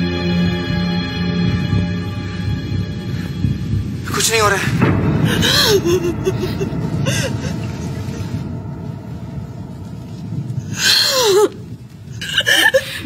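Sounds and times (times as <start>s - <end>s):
low steady rumble: 0.0s - 13.0s
women sobbing and gasping: 5.1s - 8.4s, 10.7s - 13.0s.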